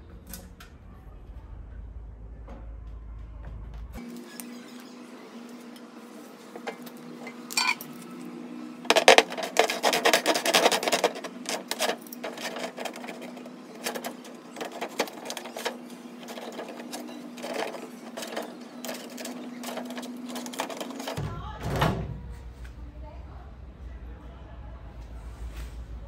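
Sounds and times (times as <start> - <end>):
marker scratching on plastic: 8.9 - 21.2
plastic sheet crackling: 8.9 - 21.2
scissors snipping plastic: 8.9 - 21.2.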